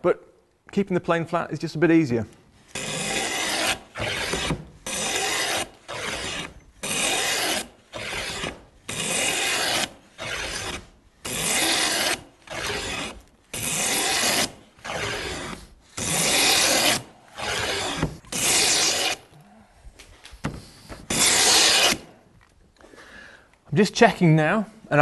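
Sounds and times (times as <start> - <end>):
wooden plane cutting wood: 2.7 - 19.4, 20.4 - 22.1.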